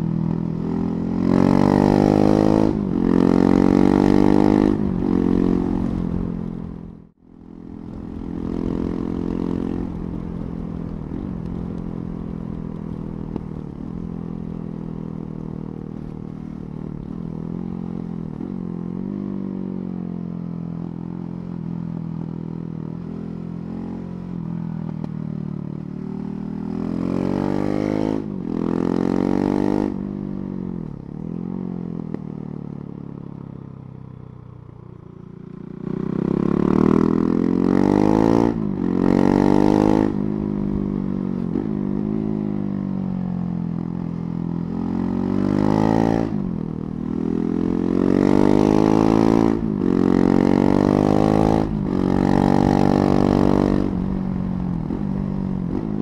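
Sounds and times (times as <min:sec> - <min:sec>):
motorcycle engine revving: 0:00.0 - 0:12.3, 0:35.4 - 0:56.0.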